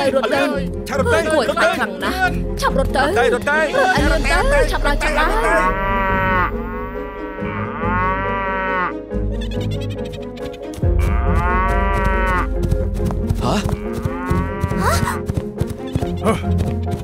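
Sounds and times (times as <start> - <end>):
background music: 0.0 - 17.0
cartoon cows mooing: 5.4 - 9.6, 11.0 - 12.5.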